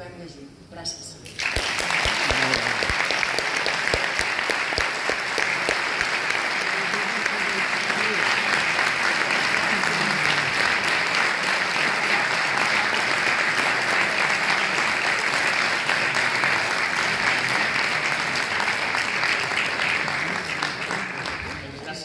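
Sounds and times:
audience applauding: 1.3s - 22.0s.

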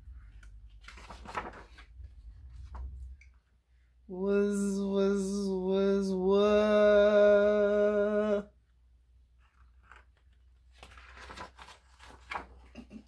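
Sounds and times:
page turning rustle: 0.1s - 3.2s, 9.3s - 13.0s
woman holding long vowel: 4.1s - 8.5s.

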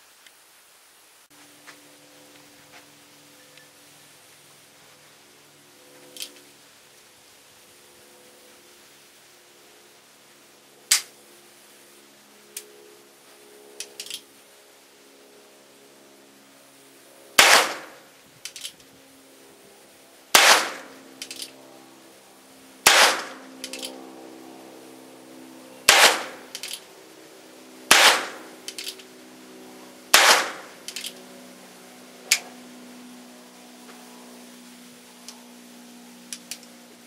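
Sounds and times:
small click: 12.5s - 12.7s, 36.3s - 36.7s
pistol shots: 17.4s - 18.0s, 20.3s - 20.9s, 22.8s - 23.4s, 25.9s - 26.6s, 27.9s - 28.5s, 30.1s - 30.8s.

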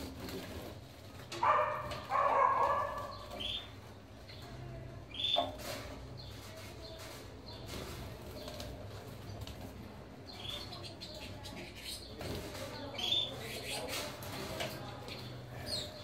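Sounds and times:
canaries fluttering in water: 0.0s - 16.0s
bark-like bird call: 1.4s - 3.7s.

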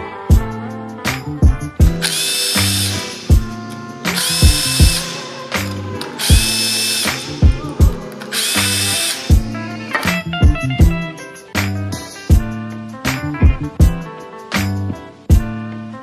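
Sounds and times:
background music with beat: 0.0s - 16.0s
cordless drill whining: 2.0s - 10.2s.

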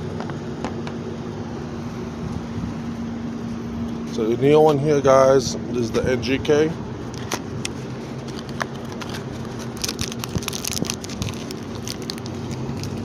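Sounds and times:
cardboard box opening: 8.2s - 13.0s
plastic bag crinkling: 8.2s - 13.0s.

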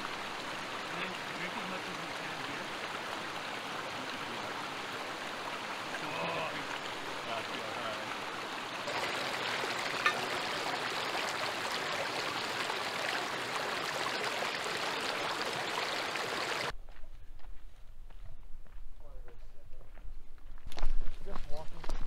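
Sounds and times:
creek water over rocks: 0.0s - 16.7s.

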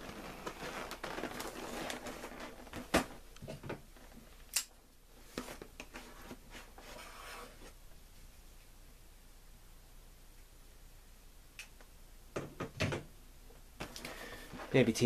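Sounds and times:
cardboard rustling and scraping: 0.0s - 4.3s, 5.2s - 7.8s.

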